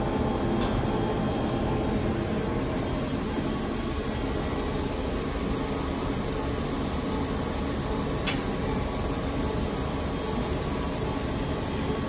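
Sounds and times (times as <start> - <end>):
industrial machinery hum and hiss: 0.0 - 12.0.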